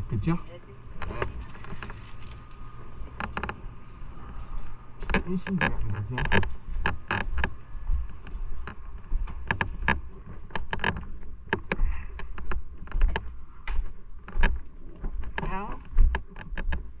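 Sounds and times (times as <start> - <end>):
footsteps on wooden stairs: 6.2 - 17.0.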